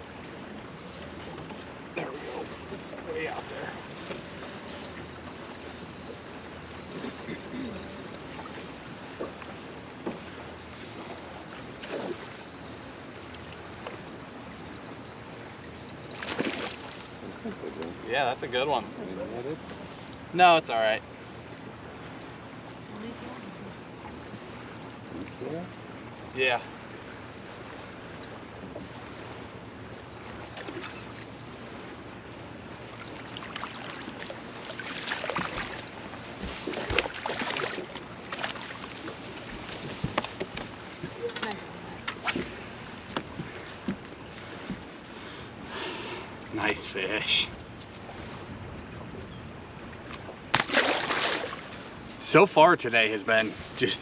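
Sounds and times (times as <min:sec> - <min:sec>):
waves lapping against boat hull: 0:00.0 - 0:54.0
wind: 0:00.0 - 0:54.0
fish splashing at surface: 0:50.5 - 0:51.8.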